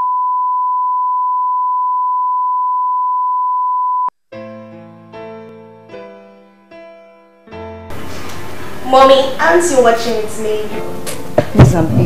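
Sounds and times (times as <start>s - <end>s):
keyboard chords: 4.3s - 12.0s.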